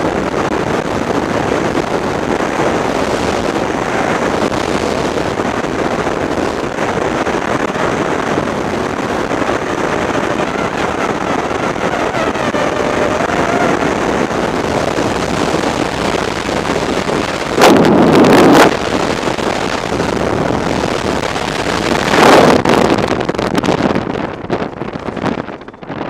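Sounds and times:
wind rushing over microphone: 0.0s - 26.0s.

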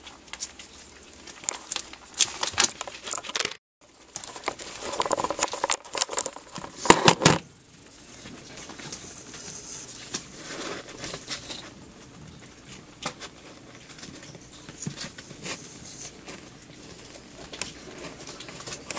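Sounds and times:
puppies eating and smacking: 0.0s - 6.7s, 7.7s - 18.9s.

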